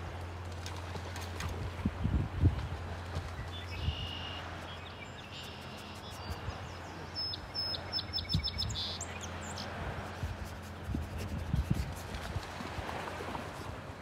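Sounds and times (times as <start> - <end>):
songbird singing: 1.9 - 9.8.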